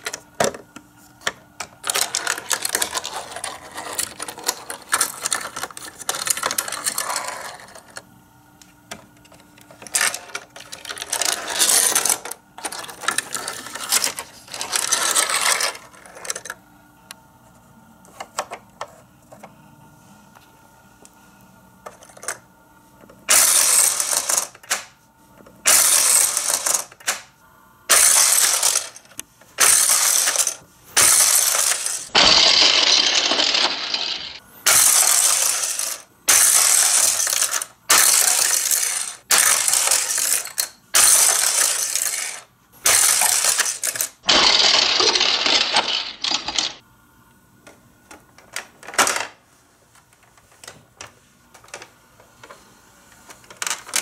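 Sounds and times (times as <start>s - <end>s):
toy cars rattling on plastic track: 1.8s - 8.0s, 9.8s - 16.6s, 23.3s - 24.9s, 25.7s - 27.2s, 27.9s - 46.8s, 53.5s - 54.0s.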